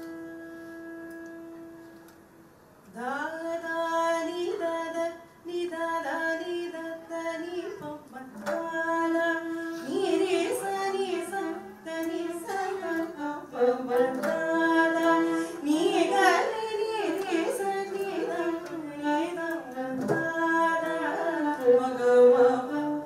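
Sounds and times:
woman singing held notes: 0:07.1 - 0:23.0.

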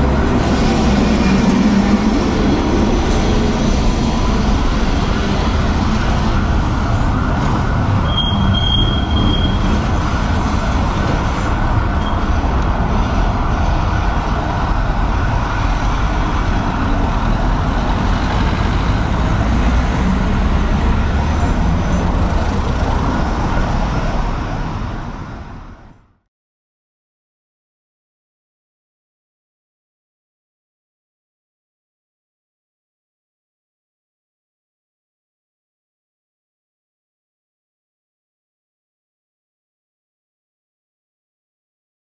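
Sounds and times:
city street traffic: 0:00.0 - 0:26.2.

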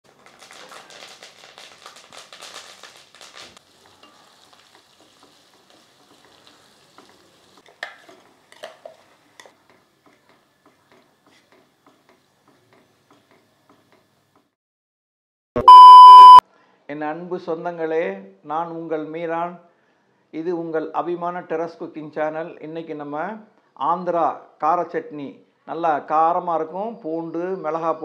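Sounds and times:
leaves sizzling in hot oil: 0:00.1 - 0:09.5
spatula stirring frying food: 0:00.1 - 0:14.5.

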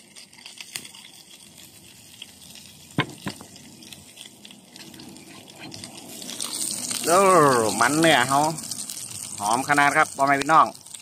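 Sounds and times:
fat sizzling in a frying pan: 0:00.0 - 0:11.0.

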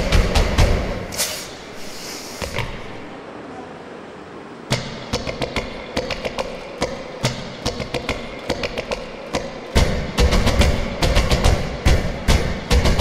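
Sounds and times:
heavy drums: 0:00.0 - 0:01.2, 0:04.7 - 0:13.0
sharp percussive hits: 0:00.0 - 0:01.6, 0:04.7 - 0:13.0.

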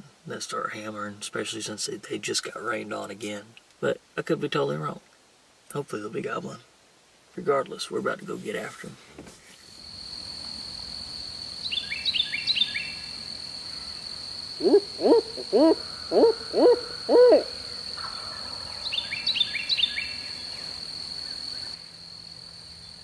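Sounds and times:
high insect whine: 0:08.4 - 0:23.0
owl hoots: 0:14.6 - 0:20.2.

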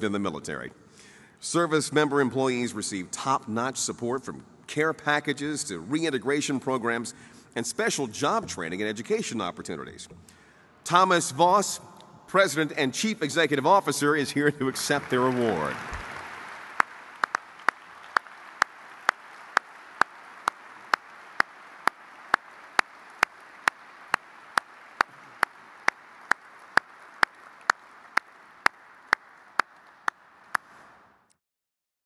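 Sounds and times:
audience applauding: 0:14.6 - 0:31.1.

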